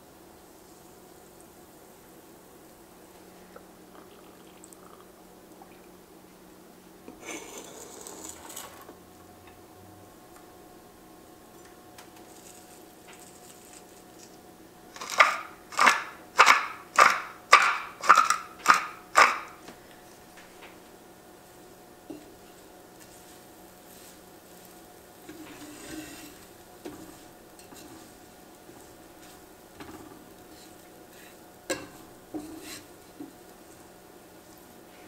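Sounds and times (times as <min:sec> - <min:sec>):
pepper mill grinding: 0:07.2 - 0:08.9, 0:12.2 - 0:19.6.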